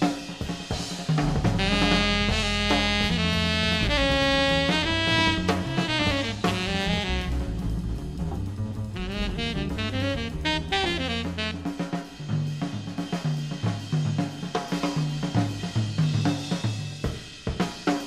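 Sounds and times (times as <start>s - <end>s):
drum kit: 0.0s - 18.0s
walking bass: 1.3s - 11.8s
tenor saxophone: 1.6s - 12.3s.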